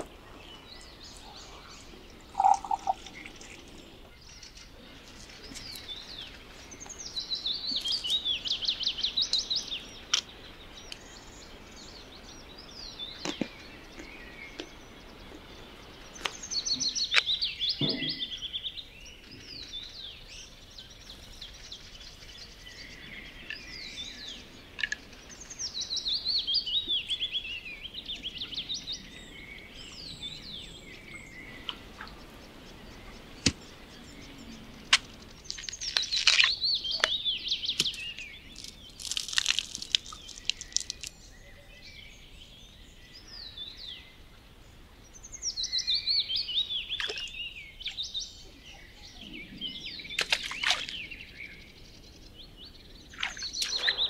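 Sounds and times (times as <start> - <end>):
songbird singing: 0.0 - 54.0.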